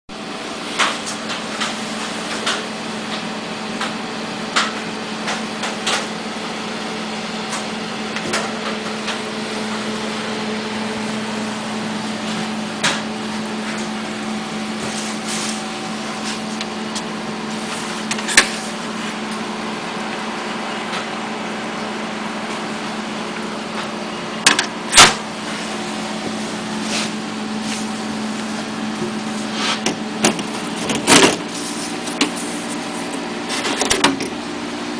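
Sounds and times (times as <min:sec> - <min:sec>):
computer fans and pump humming: 0:00.1 - 0:34.9
sharp clicks and knocks: 0:29.8 - 0:31.4.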